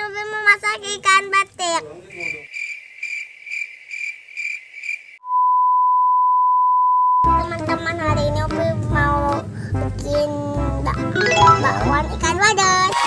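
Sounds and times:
cricket chirping: 2.1s - 5.2s
children's music: 7.2s - 13.0s
person speaking: 11.2s - 12.5s.

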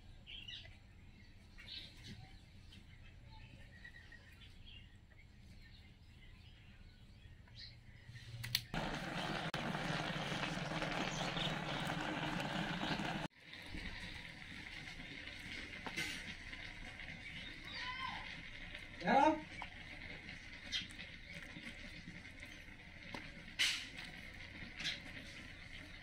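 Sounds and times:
pot of rice boiling hard: 8.7s - 26.0s.

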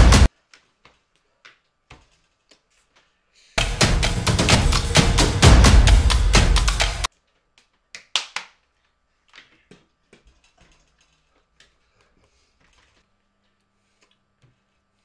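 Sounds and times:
drum-led music: 0.0s - 0.3s, 3.6s - 7.1s.

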